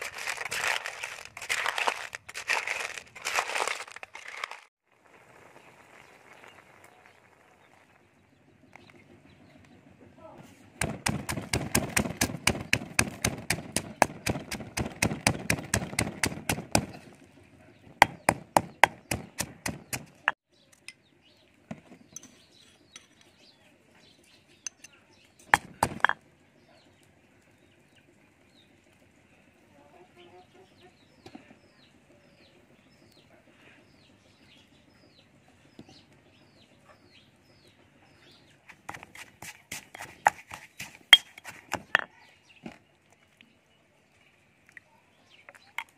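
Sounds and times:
stone pestle pounding in mortar: 10.8s - 16.9s, 18.0s - 20.4s, 25.6s - 26.2s.

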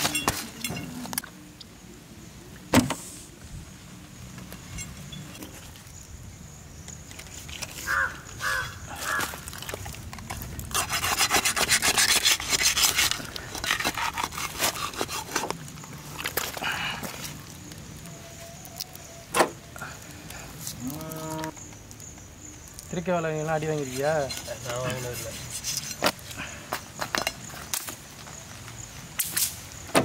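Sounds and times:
hands scraping and rubbing: 9.1s - 17.6s, 23.6s - 26.3s
knife sawing through fish skin: 10.7s - 15.5s.

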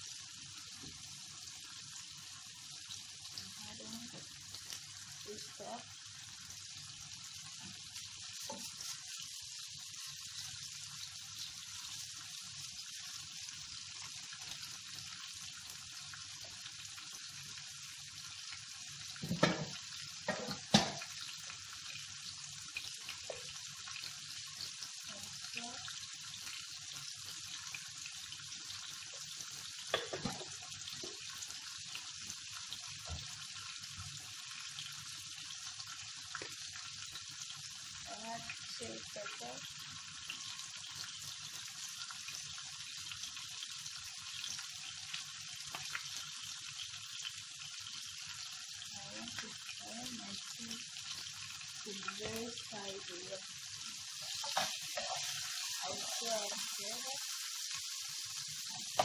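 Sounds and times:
vegetables sizzling in oil: 0.0s - 59.0s.

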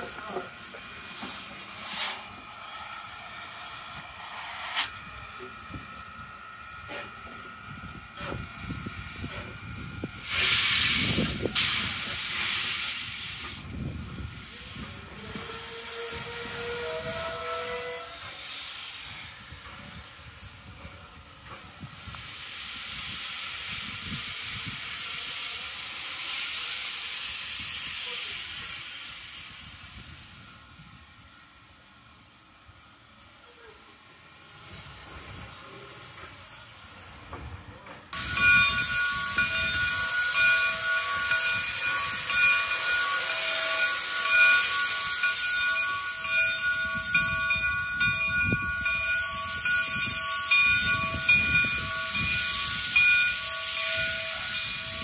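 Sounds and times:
steam locomotive hissing: 0.0s - 55.0s.

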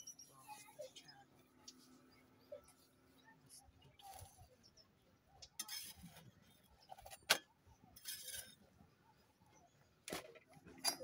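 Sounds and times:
metal spatula scraping griddle: 5.6s - 6.4s, 8.0s - 8.7s.

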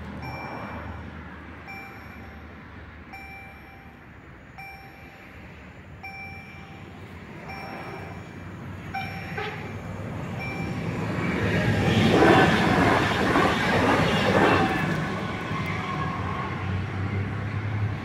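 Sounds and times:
level crossing bell striking: 3.1s - 5.4s, 9.0s - 9.6s
electric train rumble: 3.1s - 18.0s.

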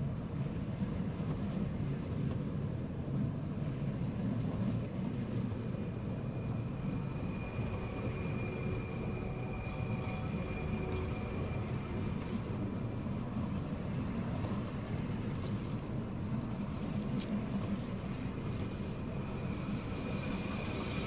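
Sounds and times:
electric train humming: 5.0s - 21.0s
faint high whine: 5.4s - 21.0s.

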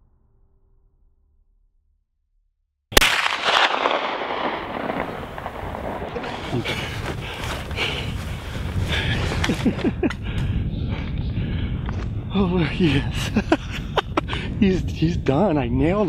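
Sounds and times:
muzzleloader gunshot crack: 3.0s - 7.0s.

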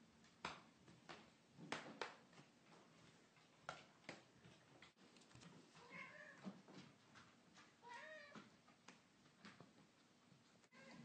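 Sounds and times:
cat meowing faintly: 5.8s - 6.5s, 7.8s - 8.4s, 10.7s - 11.0s.

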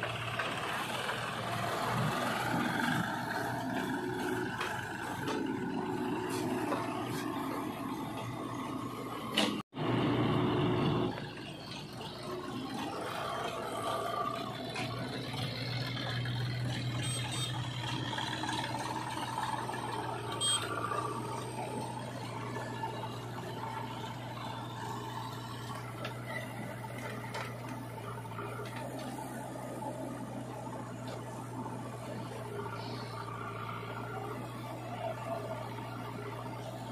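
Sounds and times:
tractor diesel engine running: 0.0s - 36.9s.

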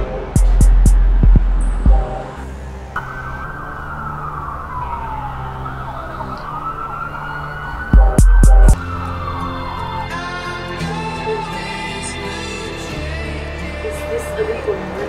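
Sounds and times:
music beat: 0.0s - 3.3s, 7.9s - 9.2s
siren wailing: 0.6s - 11.9s.

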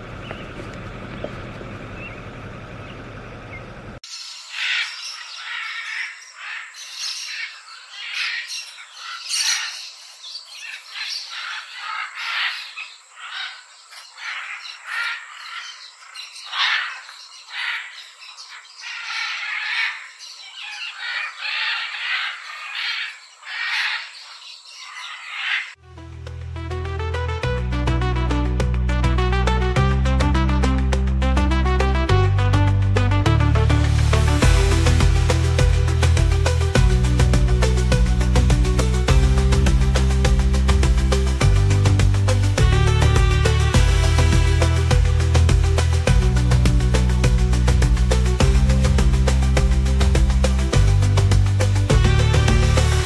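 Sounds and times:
steady noisy rumble: 0.0s - 4.0s
macaws squawking: 4.5s - 9.9s, 10.6s - 25.8s.

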